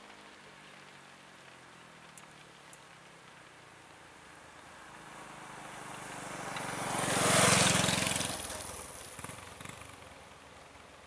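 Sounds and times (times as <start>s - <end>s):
vehicle driving past: 4.7s - 10.2s.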